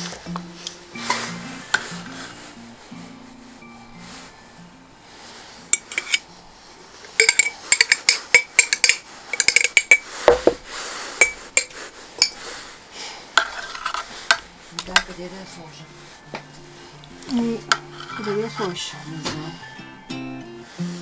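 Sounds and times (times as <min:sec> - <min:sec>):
fork clinking against glass jar: 0:05.7 - 0:06.2, 0:07.2 - 0:10.1, 0:11.2 - 0:12.4.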